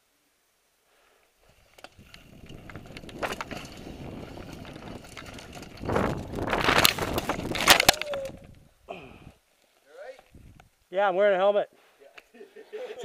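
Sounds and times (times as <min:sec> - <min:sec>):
bike tyres rumbling over dirt: 0:01.4 - 0:08.7
bike rattling and knocking: 0:01.7 - 0:08.6.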